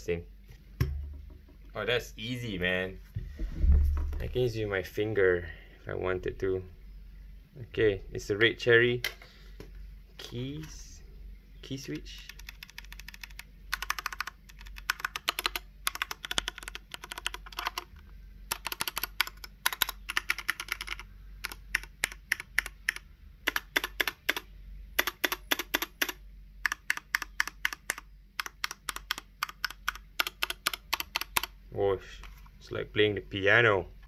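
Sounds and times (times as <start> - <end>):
mechanical keyboard typing: 12.2 - 31.6.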